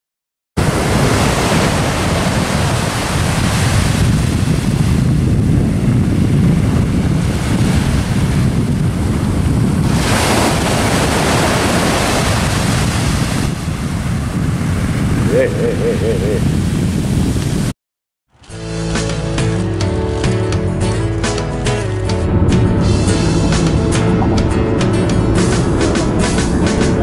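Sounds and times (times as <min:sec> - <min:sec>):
waves breaking on beach: 0:00.6 - 0:17.7
wind rumbling on microphone: 0:00.6 - 0:17.8, 0:22.0 - 0:27.0.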